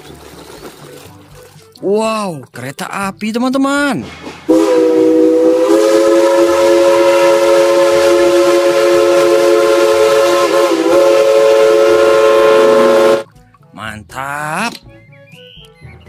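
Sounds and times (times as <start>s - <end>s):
steam locomotive whistle: 4.5s - 13.3s.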